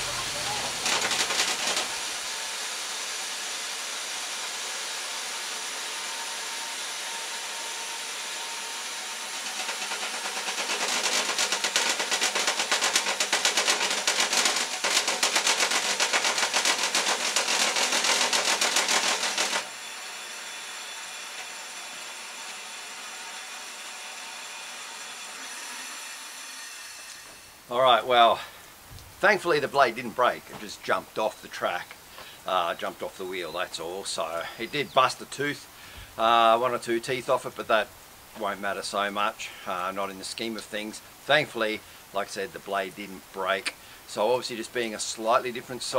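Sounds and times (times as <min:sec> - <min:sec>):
loud rapid clattering of saw blade: 0:00.0 - 0:19.8
band sawmill running: 0:00.0 - 0:28.1
steady hiss: 0:27.2 - 0:45.9.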